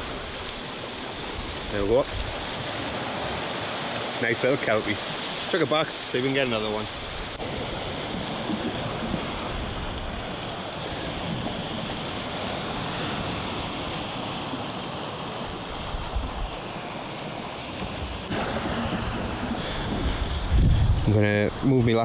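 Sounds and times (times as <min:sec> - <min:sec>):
surf breaking on rocks: 0:00.0 - 0:22.0
wind buffeting microphone: 0:06.9 - 0:22.0.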